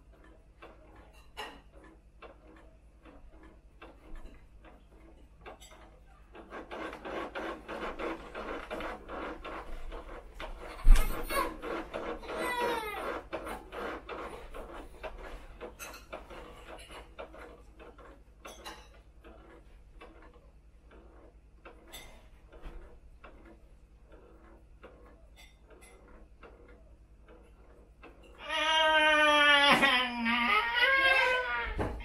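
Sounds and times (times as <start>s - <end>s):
faint irregular clicks and taps: 0.0s - 28.4s
adult imitating crying baby: 28.4s - 31.9s.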